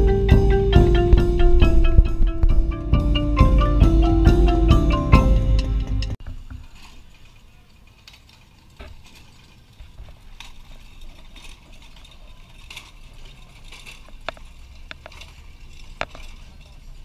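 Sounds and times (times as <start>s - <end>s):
casters rumbling on concrete: 0.0s - 4.8s
metal frames rattling and clicking: 0.0s - 17.0s.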